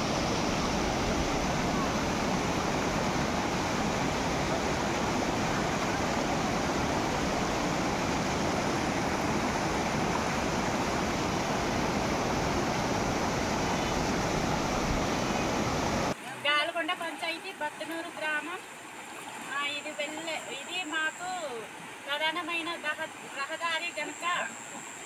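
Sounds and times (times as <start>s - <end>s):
water rushing over rocks: 0.0s - 16.3s.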